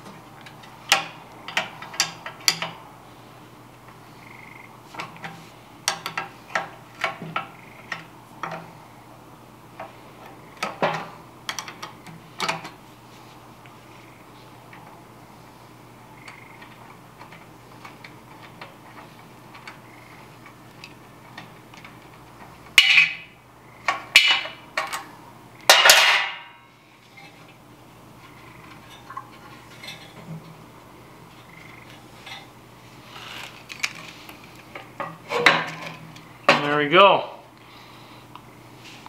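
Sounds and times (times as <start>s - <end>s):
wrench clinking on steel housing: 0.4s - 2.8s, 5.8s - 8.7s, 10.6s - 12.8s, 22.8s - 23.3s
loud metallic clanks and scrapes: 28.8s - 30.4s, 35.0s - 36.7s.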